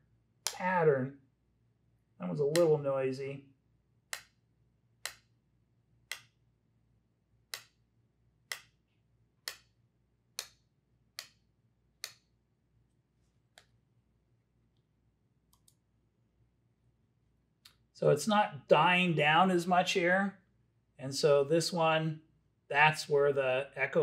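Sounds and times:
plastic pens tapping together: 0:09.4 - 0:12.3.

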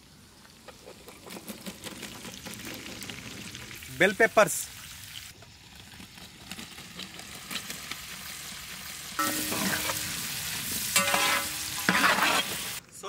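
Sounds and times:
vegetables sizzling in oil: 0:02.2 - 0:12.8.

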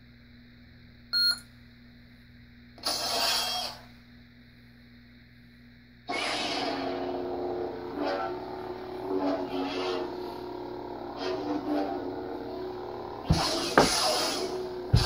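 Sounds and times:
lightsaber igniting and humming: 0:02.8 - 0:04.0, 0:06.0 - 0:15.0.

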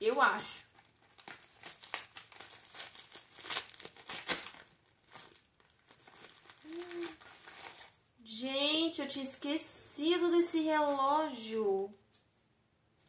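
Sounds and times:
plastic bag crinkling: 0:00.6 - 0:08.0.

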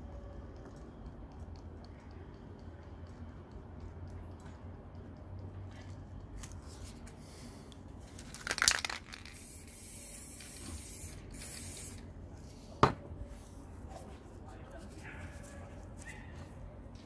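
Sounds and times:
spray can hissing: 0:08.5 - 0:12.0.

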